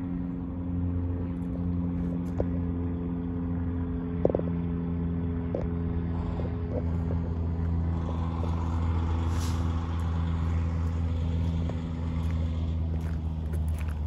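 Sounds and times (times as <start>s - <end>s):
diesel engine idling: 0.0s - 14.0s
footsteps on gravel: 6.2s - 14.0s.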